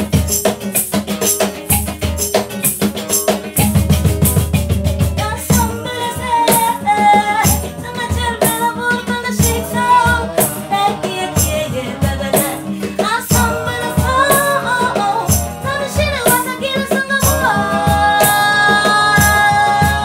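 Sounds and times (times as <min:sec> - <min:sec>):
acoustic guitar: 0:00.0 - 0:20.0
cajon beats: 0:00.0 - 0:20.0
maracas shaking: 0:00.0 - 0:20.0
woman and man singing: 0:05.2 - 0:20.0.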